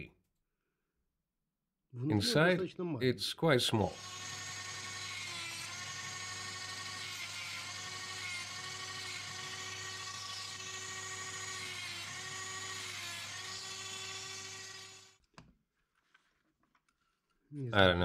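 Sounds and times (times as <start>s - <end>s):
rotary tool cutting whine: 3.8s - 15.2s.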